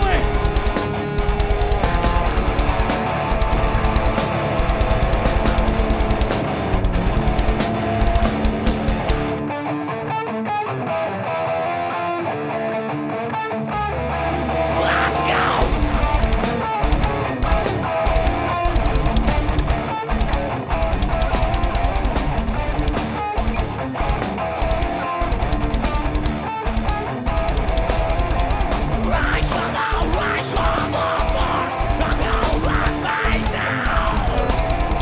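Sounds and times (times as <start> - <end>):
fast kick drum beats: 0.0 - 9.3, 15.6 - 35.0
heavy metal band playing live: 0.0 - 35.0.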